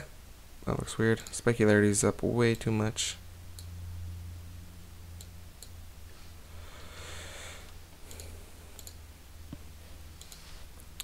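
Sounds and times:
low electrical hum: 0:00.0 - 0:11.0
computer mouse clicks: 0:07.6 - 0:09.0, 0:10.2 - 0:11.0.

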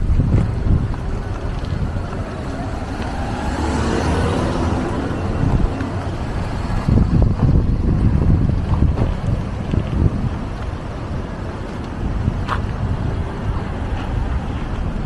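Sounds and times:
wind rumbling on microphone: 0:00.0 - 0:15.0
car driving past: 0:01.6 - 0:07.6.

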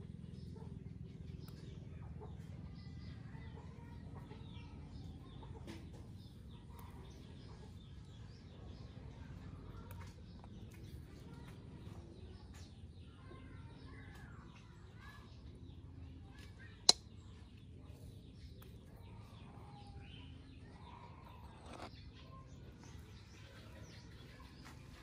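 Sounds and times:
faint bird chirps: 0:00.0 - 0:25.0
low outdoor rumble: 0:00.0 - 0:25.0.

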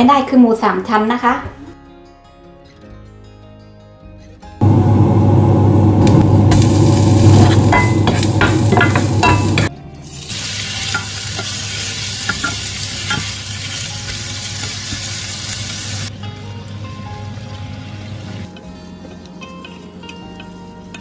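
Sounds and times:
meat sizzling in hot oil: 0:05.9 - 0:16.1, 0:16.8 - 0:18.5.

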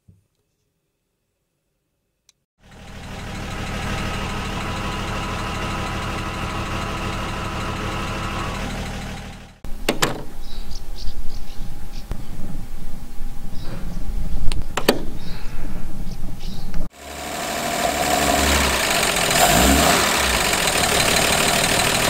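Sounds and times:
car engine idling: 0:02.6 - 0:09.9, 0:16.9 - 0:22.0.

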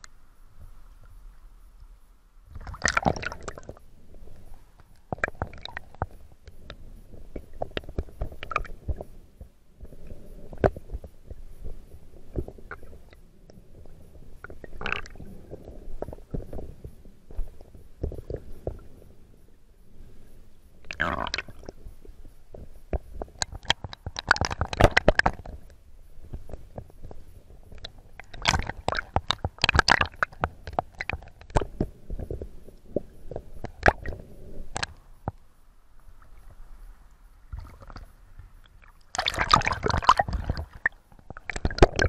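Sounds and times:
muffled rush of water and bubbles: 0:00.0 - 0:42.0
underwater crackling: 0:02.5 - 0:19.3, 0:20.7 - 0:35.4, 0:37.5 - 0:42.0.

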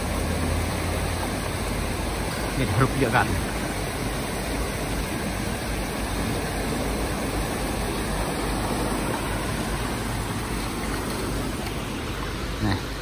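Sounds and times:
turbulent water rushing from dam: 0:00.0 - 0:13.0.

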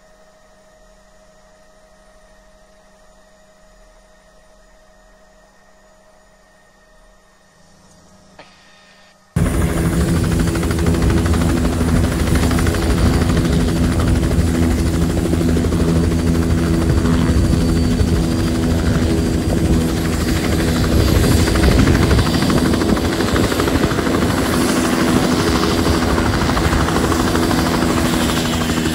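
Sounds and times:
helicopter rotor and turbine: 0:08.3 - 0:28.9.

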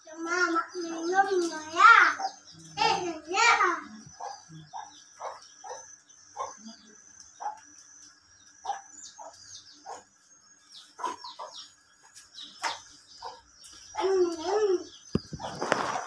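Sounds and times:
small birds chirping: 0:00.0 - 0:16.0
chicken clucking: 0:04.0 - 0:06.7, 0:10.8 - 0:16.0.

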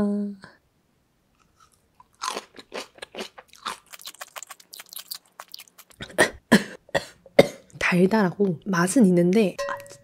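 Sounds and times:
close-up chewing crunches: 0:01.4 - 0:06.1.

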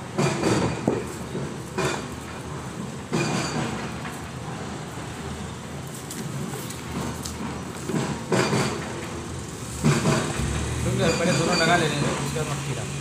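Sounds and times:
steady background noise: 0:00.0 - 0:13.0
hands rustling soil: 0:05.8 - 0:07.9.

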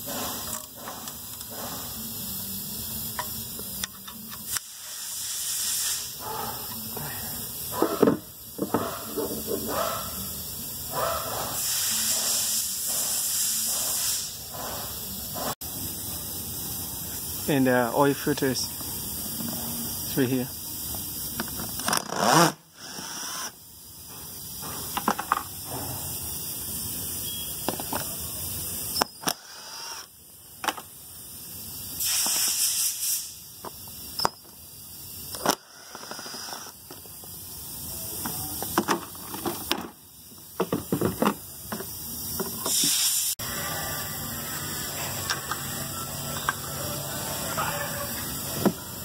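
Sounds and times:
socket ratchet clicking: 0:28.9 - 0:30.8.

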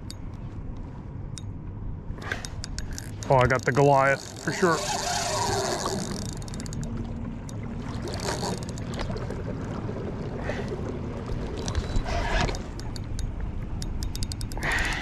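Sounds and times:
scattered clicks: 0:02.2 - 0:09.1, 0:11.6 - 0:15.0
fishing reel rapid ticking: 0:02.4 - 0:06.9, 0:08.1 - 0:08.8, 0:11.6 - 0:15.0
water sloshing against kayak hull: 0:03.1 - 0:13.8.

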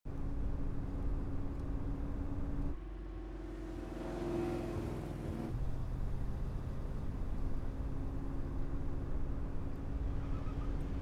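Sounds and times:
car engine revving: 0:02.8 - 0:05.8.

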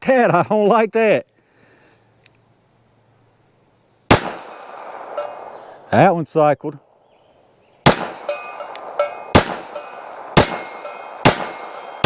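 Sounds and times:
pistol shots: 0:04.1 - 0:05.6, 0:07.8 - 0:12.0
steel target ringing clang: 0:04.1 - 0:05.6, 0:07.9 - 0:12.0.

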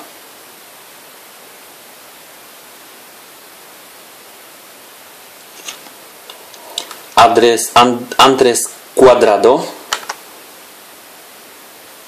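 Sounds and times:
background hiss: 0:00.0 - 0:12.0
trading cards being handled: 0:05.6 - 0:05.9.

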